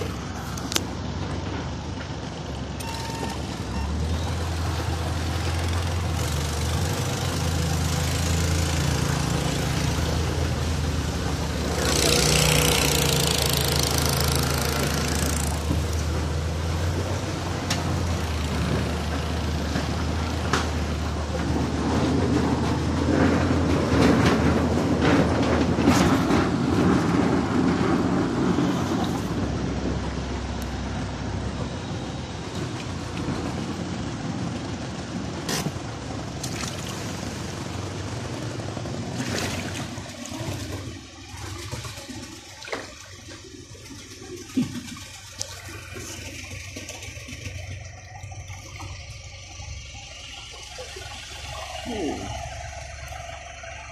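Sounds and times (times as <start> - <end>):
car engine humming: 0.0 - 53.9
water swishing against car: 31.2 - 53.9.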